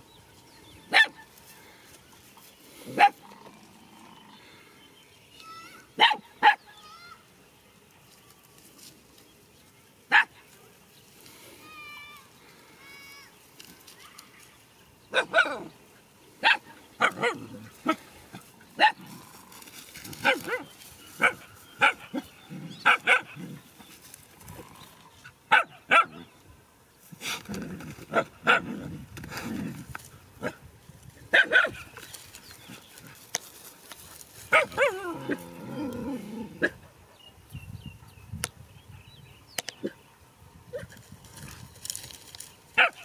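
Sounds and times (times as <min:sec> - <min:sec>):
dogs barking: 0:00.9 - 0:01.3, 0:02.9 - 0:03.4, 0:06.0 - 0:06.7, 0:10.1 - 0:10.4, 0:15.1 - 0:15.8, 0:16.4 - 0:19.2, 0:20.2 - 0:23.6, 0:25.5 - 0:26.3, 0:28.1 - 0:28.8, 0:31.3 - 0:31.9, 0:34.5 - 0:35.5, 0:42.8 - 0:43.0
lower longer dog sounds: 0:34.5 - 0:38.3.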